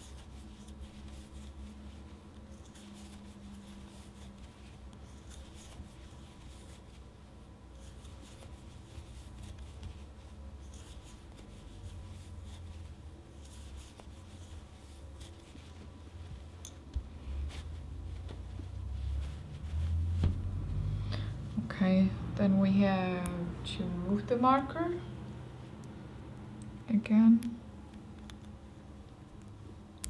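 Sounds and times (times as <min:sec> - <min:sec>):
crochet hook scraping yarn: 0:00.0 - 0:15.9
low steady hum: 0:00.0 - 0:30.0.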